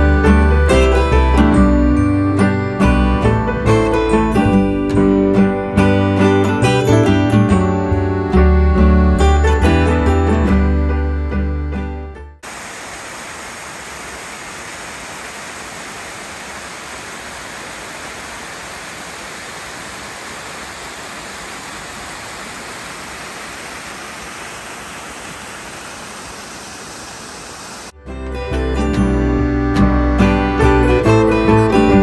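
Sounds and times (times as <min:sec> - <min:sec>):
waterfall rushing over rocks: 0:12.4 - 0:28.0.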